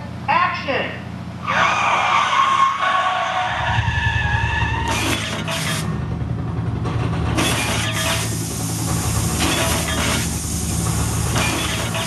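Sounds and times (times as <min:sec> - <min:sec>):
deep engine rumble: 0:01.2 - 0:12.0
car tires squealing: 0:01.4 - 0:05.8
loud hissing mist jets: 0:07.4 - 0:12.0.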